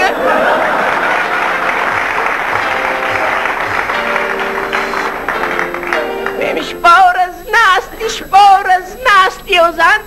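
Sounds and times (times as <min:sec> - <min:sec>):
audience applauding: 0:00.0 - 0:06.8
instrumental music: 0:01.0 - 0:07.3.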